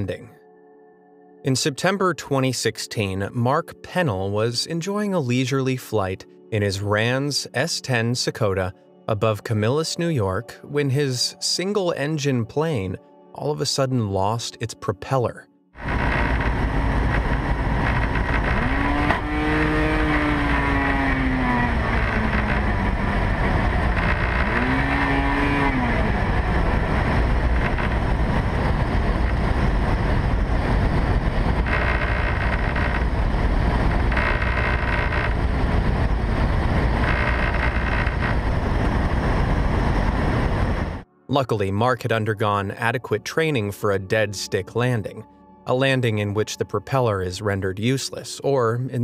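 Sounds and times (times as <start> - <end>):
plane engine revving: 15.8 - 41.1
wind rushing in cockpit: 15.8 - 41.1.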